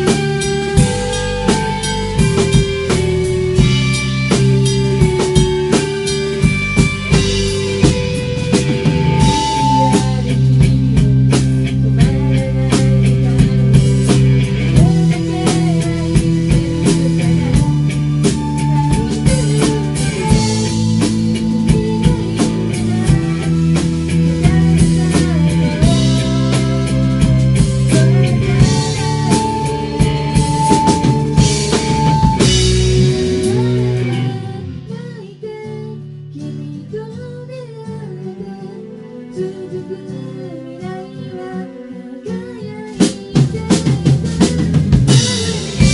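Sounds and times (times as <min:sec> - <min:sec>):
electric guitar long high note: 0:00.0 - 0:12.3, 0:12.9 - 0:34.9
drum kit beat: 0:00.0 - 0:35.0, 0:42.9 - 0:45.9
pop-rock band playing: 0:00.0 - 0:35.5, 0:38.1 - 0:45.9.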